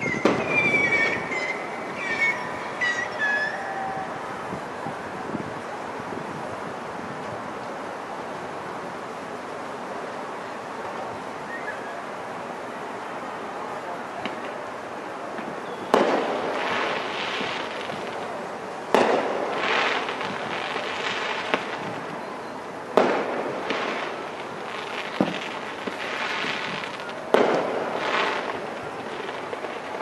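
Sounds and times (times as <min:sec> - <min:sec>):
small fireworks pops: 0:00.0 - 0:06.5, 0:14.2 - 0:30.0
fireworks bangs: 0:00.0 - 0:09.0, 0:13.7 - 0:30.0
fireworks crackling: 0:00.0 - 0:30.0.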